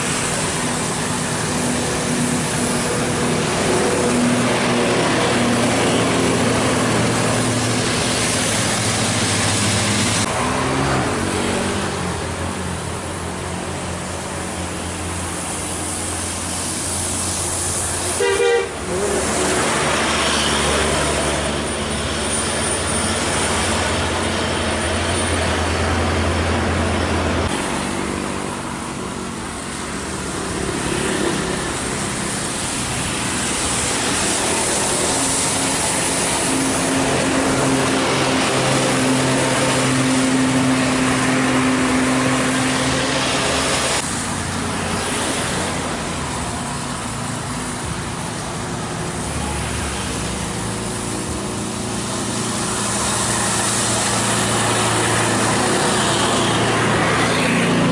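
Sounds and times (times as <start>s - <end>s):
buses and truck driving past: 0.0s - 57.9s
tyres hissing on wet road: 0.0s - 57.9s
vehicle horn blast: 18.2s - 19.0s.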